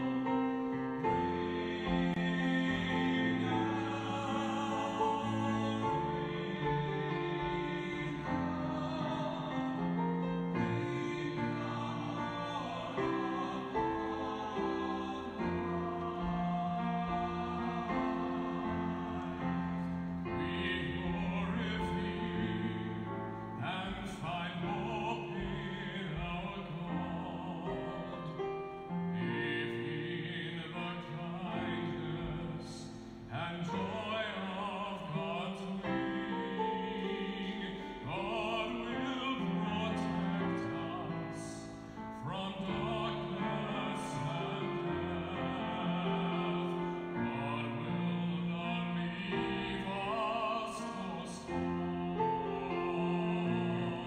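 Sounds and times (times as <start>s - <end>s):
long held instrumental chords: 0.0s - 28.6s
person singing a slow hymn: 1.0s - 54.0s.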